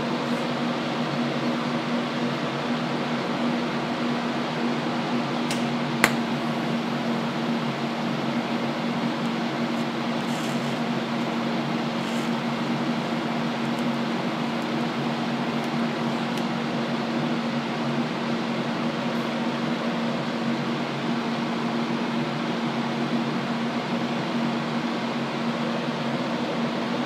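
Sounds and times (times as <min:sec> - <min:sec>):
welding machine humming: 0:00.0 - 0:19.8.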